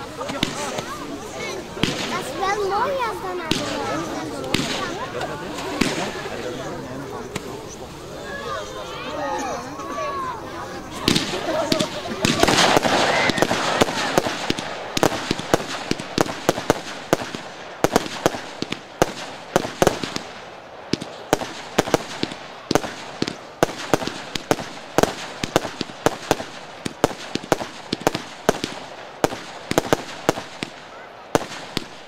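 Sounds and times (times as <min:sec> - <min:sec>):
fireworks hiss: 0:00.0 - 0:09.5, 0:10.6 - 0:32.0
fireworks shells bursting: 0:10.9 - 0:32.0.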